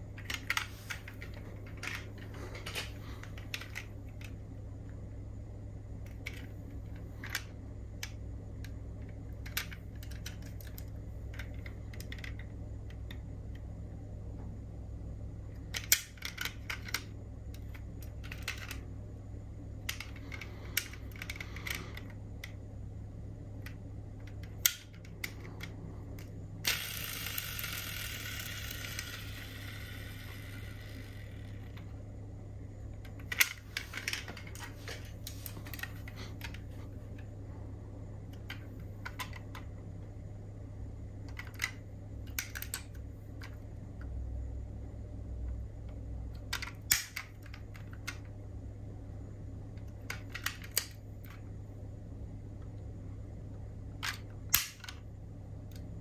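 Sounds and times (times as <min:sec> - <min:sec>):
low hum: 0:00.0 - 0:56.0
hissing whirr: 0:24.6 - 0:32.2
metal model cars clicking: 0:41.3 - 0:43.6, 0:46.4 - 0:48.3, 0:54.0 - 0:55.0.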